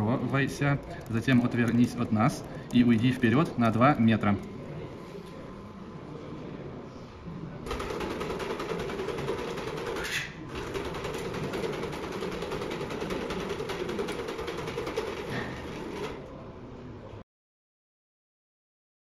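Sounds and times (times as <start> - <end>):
rapid ticking: 7.7 - 15.3.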